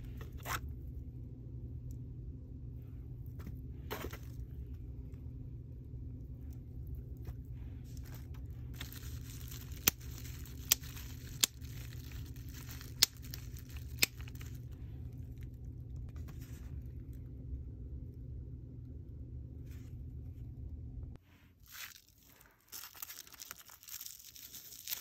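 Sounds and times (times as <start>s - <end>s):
low hum: 0.0s - 21.5s
bubble wrap crinkling: 7.2s - 17.1s, 21.5s - 25.0s.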